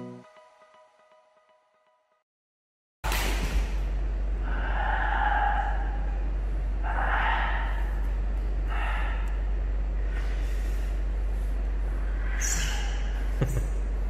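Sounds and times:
steady low hum: 3.1s - 14.0s.

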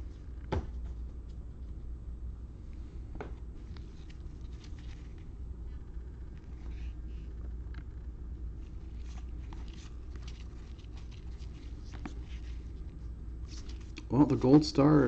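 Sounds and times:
steady low hum: 0.0s - 15.0s
cards and wrapper rustling: 3.7s - 5.3s, 8.6s - 12.8s, 13.5s - 14.1s.

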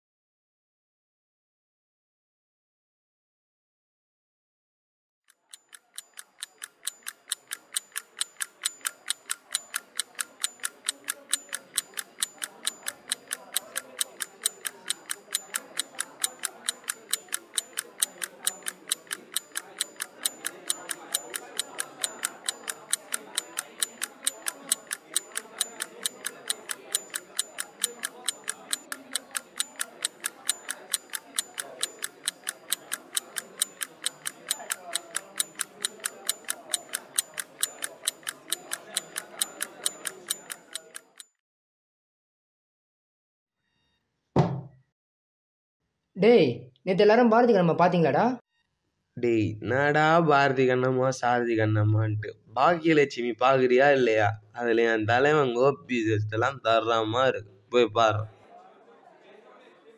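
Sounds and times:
rapid even ticking: 5.5s - 41.2s
faint murmur of voices: 6.1s - 41.2s, 49.2s - 59.9s.

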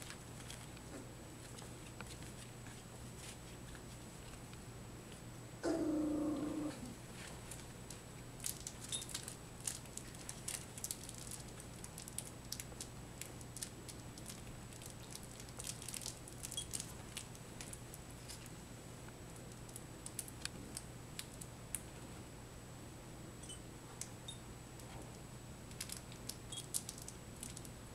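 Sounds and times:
puppy whining: 5.6s - 7.0s.

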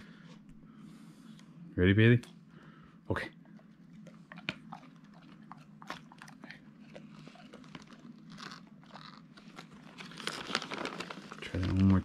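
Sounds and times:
dogs crunching treats: 3.4s - 12.0s.

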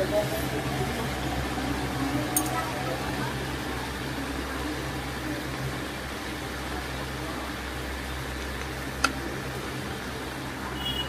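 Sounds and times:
background hum and hiss: 0.0s - 11.0s.

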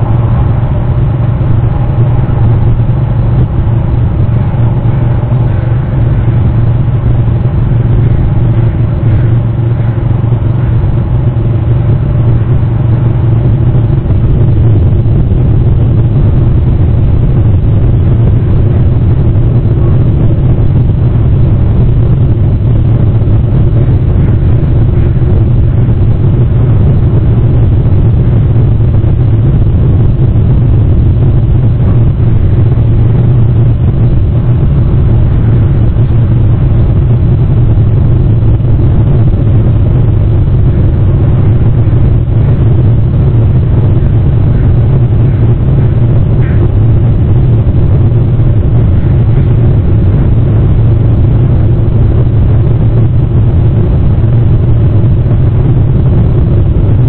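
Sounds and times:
low rumble with hum: 0.0s - 57.0s.

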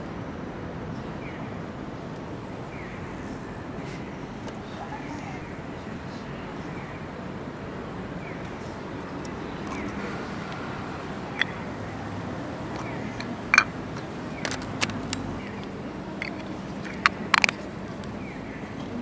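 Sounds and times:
street background hum: 0.0s - 19.0s
camera lens clicks and taps: 12.8s - 15.3s, 16.2s - 17.6s.

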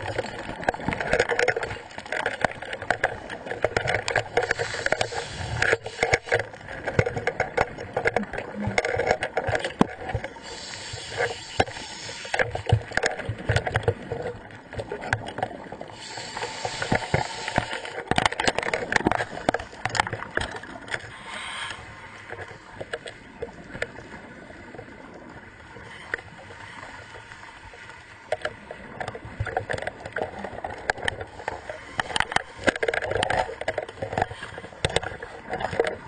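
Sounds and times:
knocks and clicks: 0.0s - 10.3s
underwater bubbling: 0.0s - 36.0s
hissing regulator breath: 4.4s - 6.3s, 10.4s - 12.4s, 16.0s - 18.0s, 21.1s - 21.9s.

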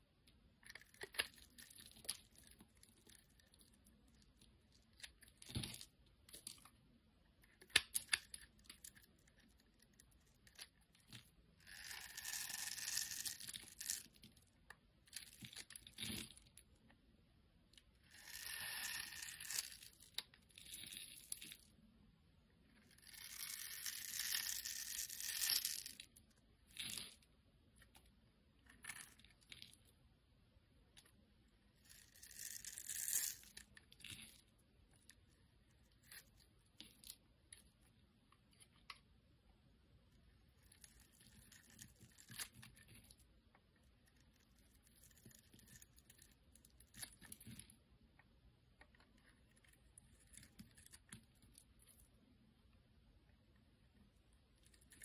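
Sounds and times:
knife scraping soap: 7.4s - 14.4s, 18.0s - 21.6s, 22.7s - 26.0s, 40.4s - 43.2s, 43.8s - 47.8s.

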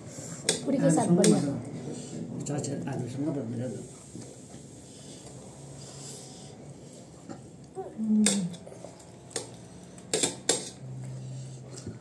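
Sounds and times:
spoon and dishes clinking on metal: 10.1s - 10.8s.

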